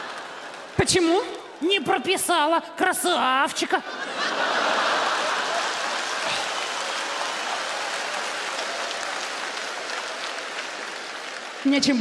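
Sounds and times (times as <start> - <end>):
studio audience applauding: 0.0 - 1.3, 4.3 - 12.0.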